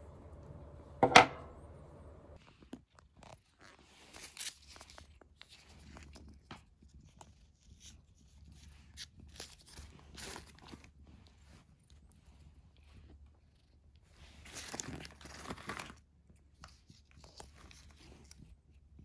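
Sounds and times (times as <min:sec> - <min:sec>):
plastic pouches rustling and tearing: 0:02.9 - 0:11.5, 0:14.3 - 0:18.6.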